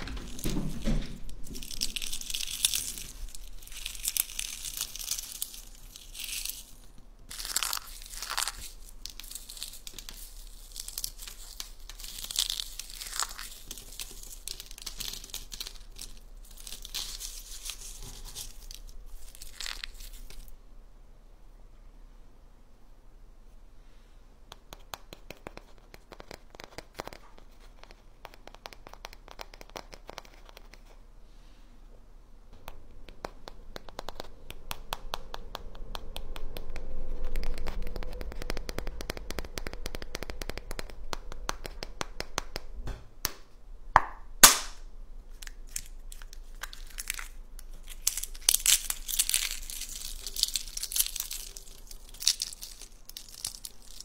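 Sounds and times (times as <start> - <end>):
eggshell cracking: 0.0 - 20.5, 45.4 - 54.0
eggshell crunching: 0.0 - 20.6, 44.4 - 54.0
fingers tapping on eggshell: 24.5 - 31.0.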